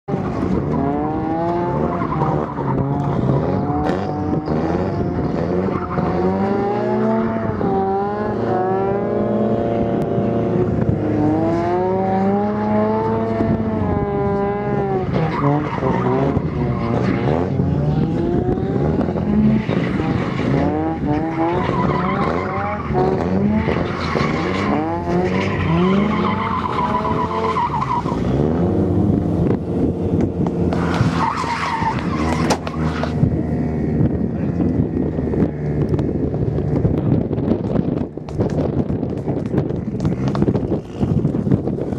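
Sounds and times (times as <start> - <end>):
tyres squealing on asphalt: 0.1 - 7.7, 14.8 - 17.6, 19.4 - 28.6, 30.7 - 33.2
rotary engine revving: 0.1 - 41.9.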